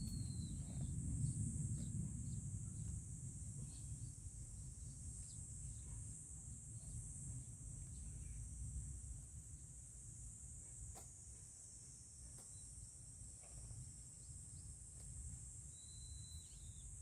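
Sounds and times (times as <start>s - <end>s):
low background rumble: 0.0s - 10.9s
insect chorus droning: 0.0s - 17.0s.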